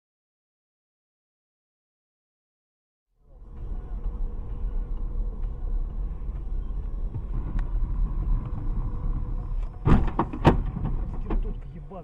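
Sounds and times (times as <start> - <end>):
car engine and road noise: 3.2 - 12.0.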